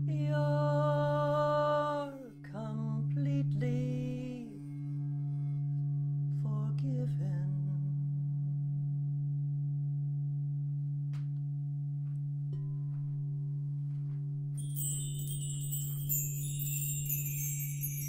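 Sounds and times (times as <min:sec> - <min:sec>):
high bright chimes: 0:14.6 - 0:18.0
singing bowl ringing: 0:14.6 - 0:18.0.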